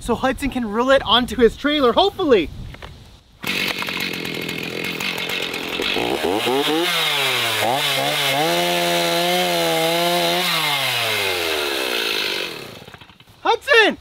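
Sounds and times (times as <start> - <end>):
chainsaw cutting tree limb: 3.4 - 13.4.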